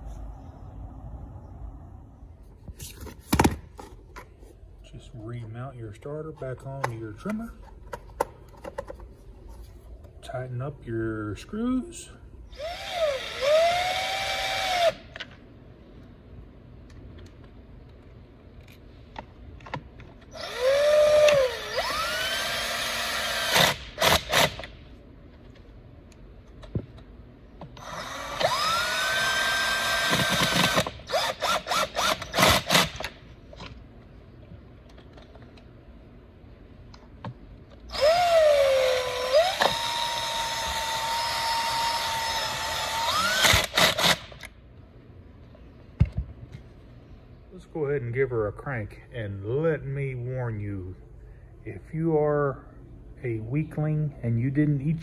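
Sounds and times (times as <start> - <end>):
cordless drill whining: 12.5 - 15.0, 20.3 - 24.6, 27.8 - 33.0, 37.9 - 44.3.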